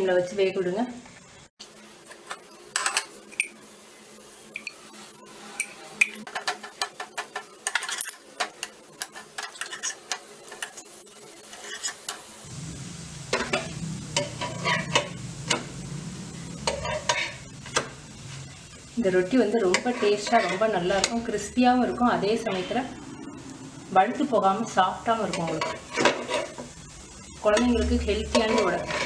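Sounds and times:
oil sizzling: 1.2 - 29.0
spatula scraping and tapping pan: 2.1 - 3.6, 5.6 - 12.3, 13.3 - 15.7, 16.6 - 17.9, 19.6 - 21.2, 25.2 - 26.7, 27.5 - 29.0.

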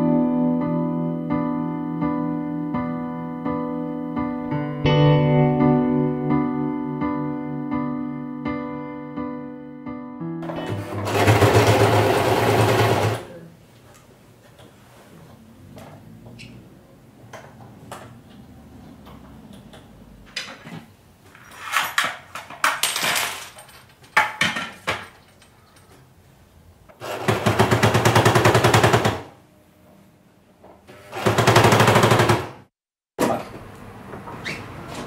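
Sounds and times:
sewing machine stitching: 10.4 - 13.4, 26.9 - 29.3, 30.9 - 32.6.

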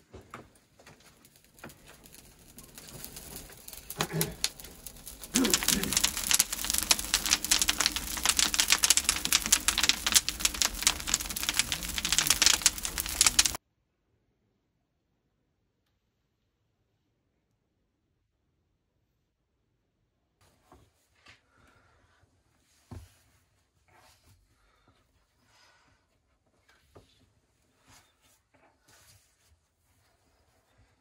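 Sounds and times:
twigs crackling in fire: 0.6 - 13.6.

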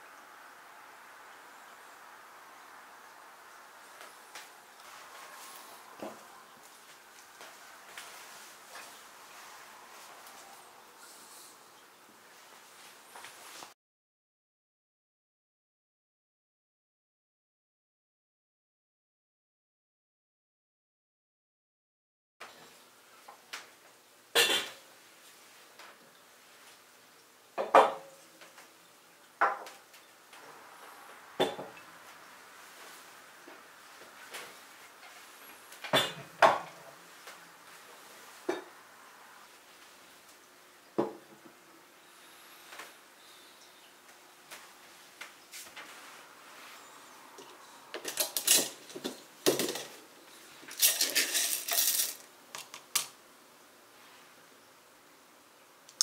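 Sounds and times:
coffee beans rattling against glass: 50.7 - 52.3.

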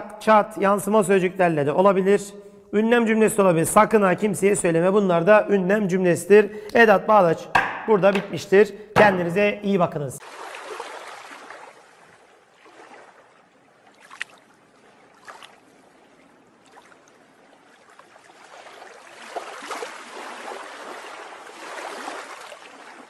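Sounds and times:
water lapping and trickling: 10.2 - 23.0.

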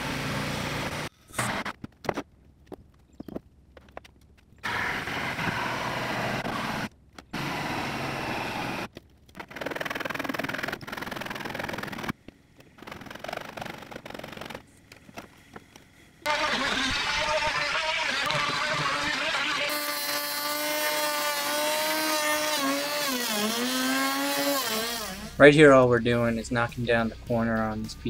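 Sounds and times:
jigsaw cutting plywood: 4.6 - 12.2, 12.8 - 14.6, 16.2 - 25.4
power tool whining: 16.2 - 25.4.

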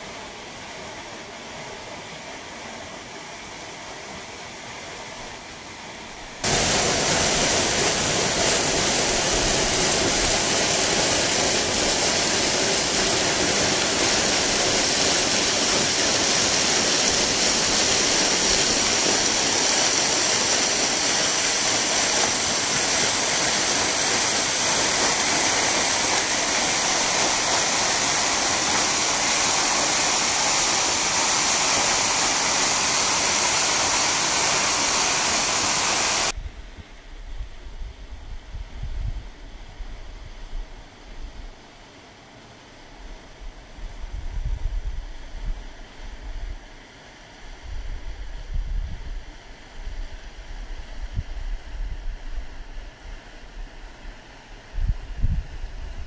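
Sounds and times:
waterfall rushing: 6.4 - 36.3.

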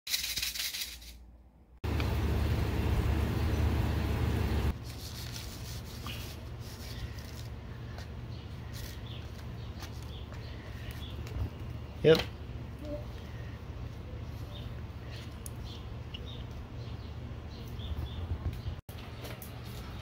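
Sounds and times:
loud steady low rumble: 1.8 - 4.8
seed packet rustling: 4.8 - 7.6.

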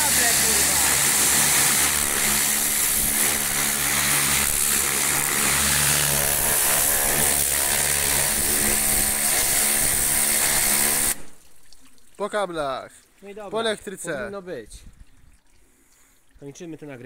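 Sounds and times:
high-pressure water jet hissing: 0.0 - 11.2
pressure washer motor and pump hum: 0.0 - 11.2.

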